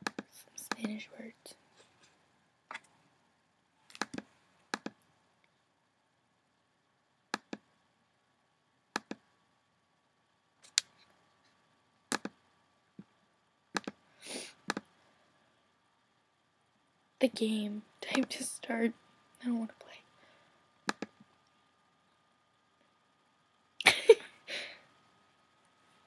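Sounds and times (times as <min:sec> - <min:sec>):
computer mouse clicks: 0:00.0 - 0:01.0, 0:03.9 - 0:05.0, 0:07.3 - 0:07.7, 0:09.0 - 0:09.2, 0:12.1 - 0:12.4, 0:13.8 - 0:14.0, 0:20.8 - 0:21.3.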